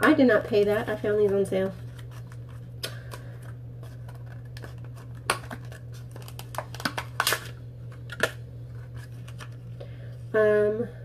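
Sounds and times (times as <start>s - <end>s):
steady low hum: 0.0s - 11.0s
packaging clicks and crinkles: 1.2s - 9.6s.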